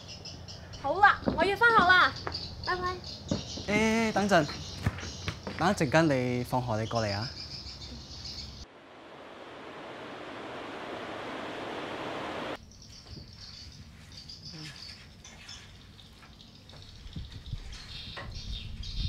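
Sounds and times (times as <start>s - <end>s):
birds chirping: 0.0s - 8.7s, 11.3s - 19.0s
crickets chirping: 0.0s - 17.7s
steady rushing noise: 8.6s - 12.6s.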